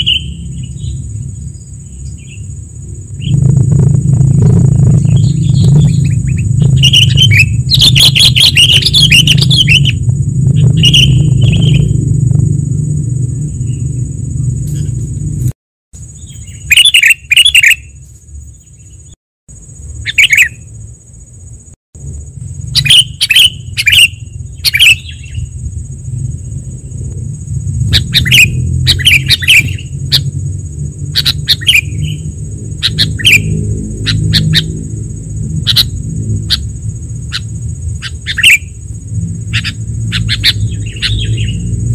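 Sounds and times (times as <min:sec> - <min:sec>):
birds chattering calls: 0:00.0 - 0:02.6, 0:04.3 - 0:10.0, 0:10.6 - 0:12.0, 0:16.1 - 0:18.0, 0:20.0 - 0:20.6, 0:22.6 - 0:25.6, 0:27.8 - 0:41.9
low rumble: 0:00.0 - 0:15.6, 0:24.2 - 0:38.0, 0:38.6 - 0:41.9
high whine: 0:00.0 - 0:41.9.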